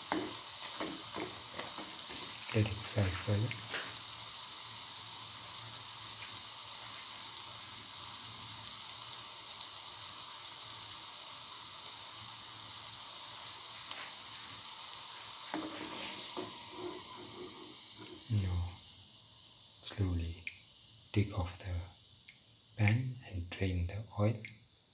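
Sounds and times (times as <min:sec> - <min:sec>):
fritters deep-frying in oil: 0:00.0 - 0:24.9
metal spoon knocking pan: 0:00.1 - 0:02.3.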